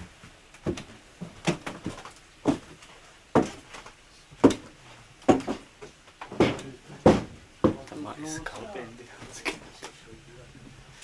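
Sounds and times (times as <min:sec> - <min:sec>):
sharp knocks and clunks: 0:00.0 - 0:08.0.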